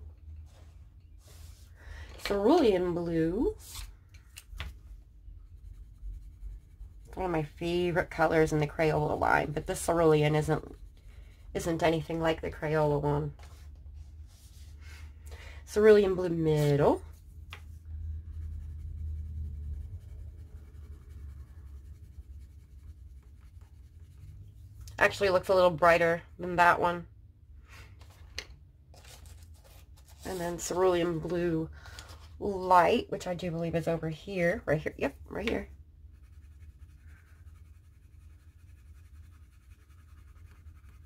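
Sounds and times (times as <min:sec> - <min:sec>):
low steady hum: 0:00.0 - 0:41.0
pencil scratching on paper: 0:05.3 - 0:13.6, 0:15.8 - 0:24.6, 0:34.8 - 0:41.0.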